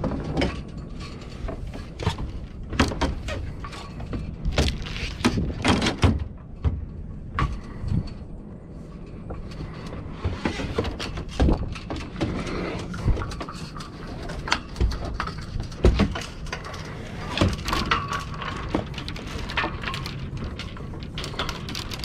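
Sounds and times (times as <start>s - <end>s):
knocks and thumps on boat deck: 1.4s - 8.1s, 10.0s - 12.4s, 14.6s - 16.4s.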